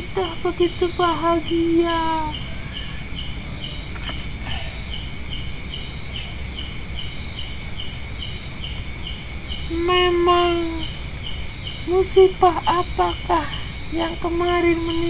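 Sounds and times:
crickets chirping: 0.0s - 15.0s
high-pitched insect drone: 0.0s - 15.0s.

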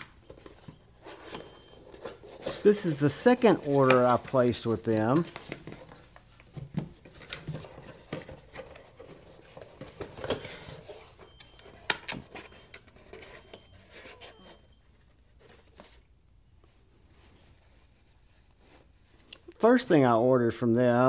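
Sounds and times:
packaging rustling: 0.1s - 14.8s.

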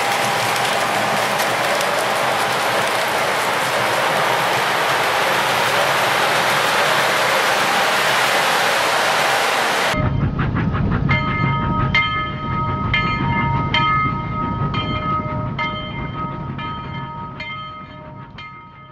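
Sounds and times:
model train rumbling: 0.0s - 18.8s.

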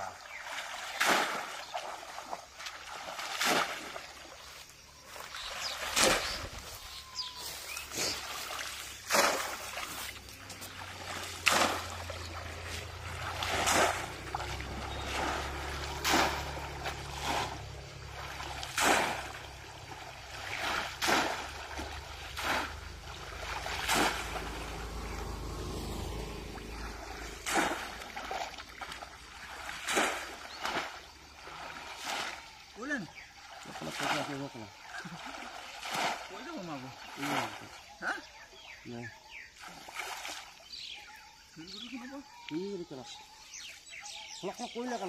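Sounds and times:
basket splashing in water: 0.6s - 4.4s, 5.3s - 6.8s, 8.0s - 32.5s, 35.0s - 37.7s.

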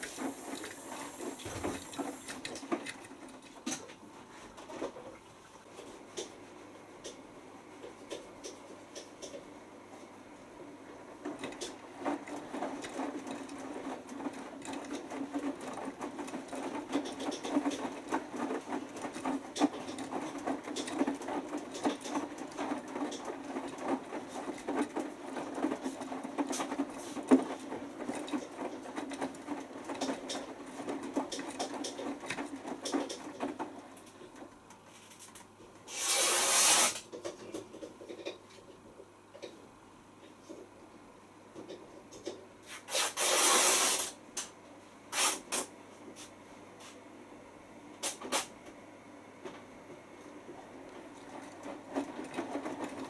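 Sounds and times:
washing machine drum tumbling clothes: 0.0s - 7.2s, 10.9s - 39.5s, 49.4s - 53.0s
loud hiss: 35.9s - 37.0s, 42.9s - 44.2s.

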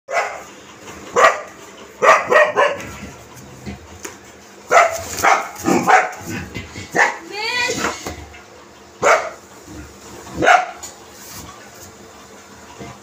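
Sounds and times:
dog barking: 0.1s - 0.5s, 1.1s - 2.9s, 4.7s - 6.3s, 6.9s - 7.3s, 9.0s - 9.4s, 10.4s - 10.8s.

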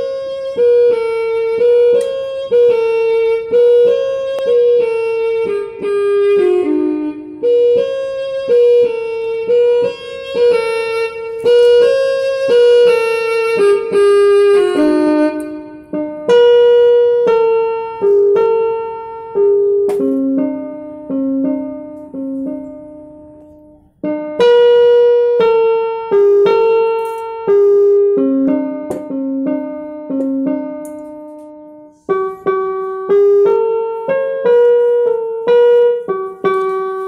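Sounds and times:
slow keyboard melody: 0.0s - 37.0s.

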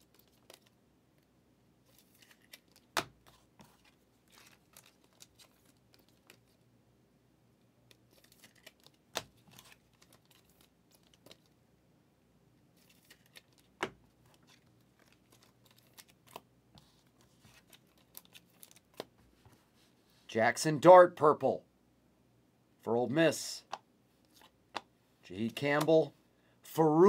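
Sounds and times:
trading cards and wrappers rustling: 0.0s - 0.8s, 1.8s - 6.6s, 7.9s - 11.6s, 12.7s - 19.8s, 24.2s - 24.6s, 25.3s - 26.1s.

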